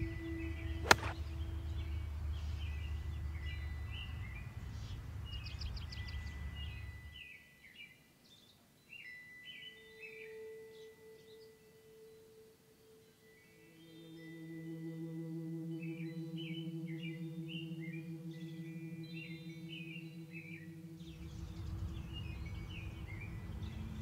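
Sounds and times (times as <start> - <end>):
birds chirping: 0.0 - 7.1, 15.7 - 24.0
golf club striking ball: 0.8 - 1.2
wind rumble on microphone: 21.0 - 24.0.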